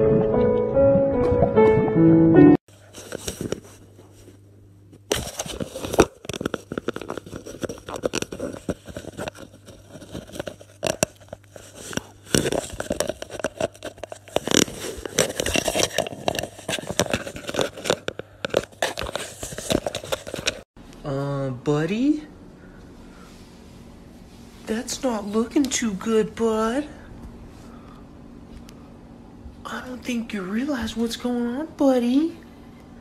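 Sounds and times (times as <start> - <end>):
cardboard crackling and scraping: 2.7 - 4.4, 5.1 - 20.7.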